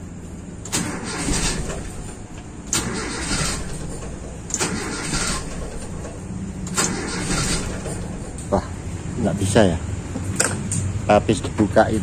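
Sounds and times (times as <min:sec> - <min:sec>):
starter cranking engine: 0:00.6 - 0:08.5.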